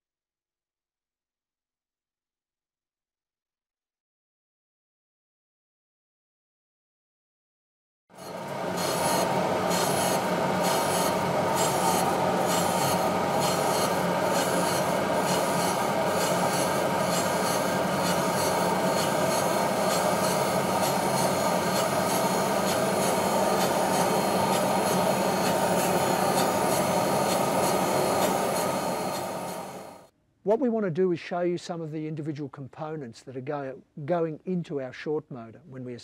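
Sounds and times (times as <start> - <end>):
harsh grinding: 8.2 - 29.9
machine hum: 8.2 - 30.1.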